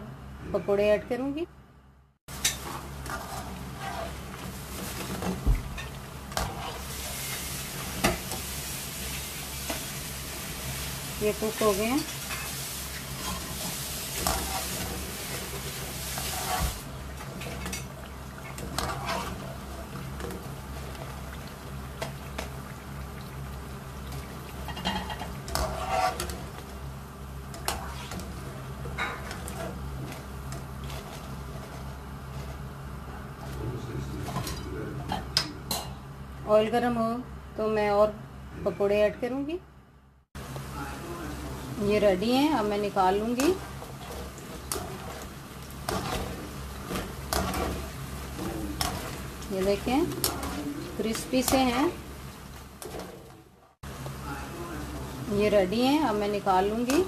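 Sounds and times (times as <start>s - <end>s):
food deep-frying in oil: 2.3s - 33.6s, 40.4s - 57.0s
skimmer scraping and clinking on pan: 24.7s - 26.4s.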